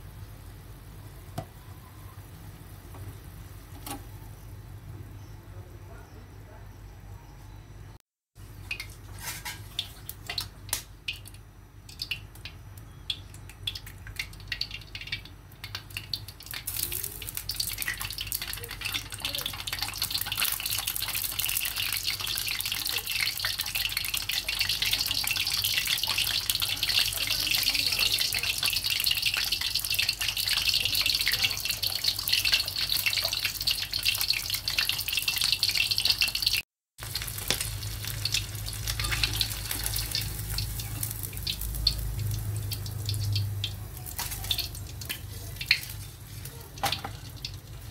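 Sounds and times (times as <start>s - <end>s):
oil crackling and popping: 8.4s - 47.9s
egg sizzling: 8.5s - 47.9s.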